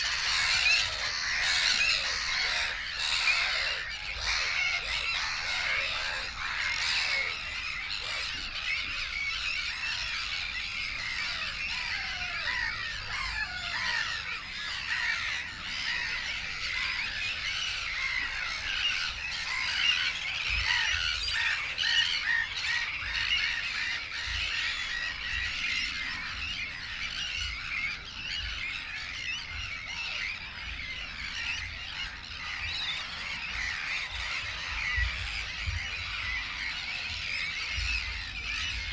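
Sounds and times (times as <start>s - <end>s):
chorus of birds calling: 0.0s - 38.9s.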